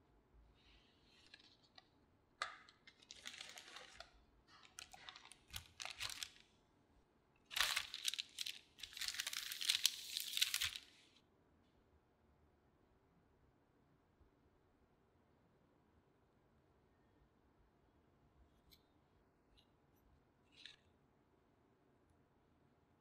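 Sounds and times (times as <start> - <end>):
baking paper rustling and crinkling: 2.8 - 6.4, 7.5 - 11.1.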